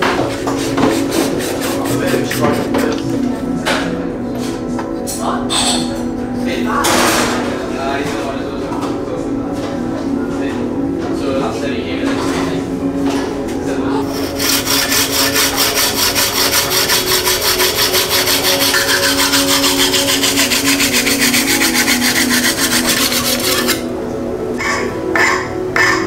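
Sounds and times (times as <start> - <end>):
hacksaw cutting tube: 0.5 - 3.0, 14.1 - 23.9.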